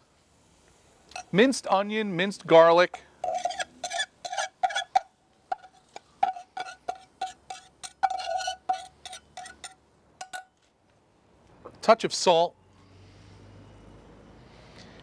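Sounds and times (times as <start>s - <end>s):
metal saucepan clinking on bowl: 3.2s - 10.5s.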